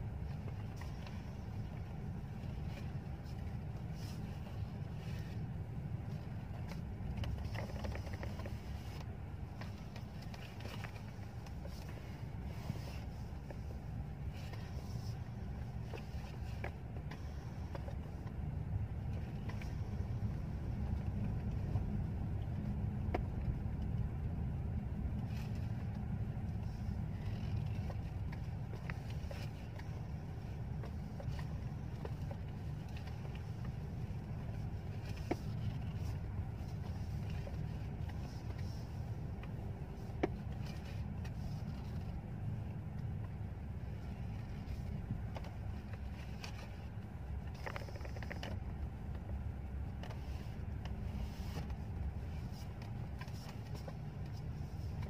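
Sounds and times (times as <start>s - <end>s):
car cabin engine and tyre rumble: 0.0s - 55.0s.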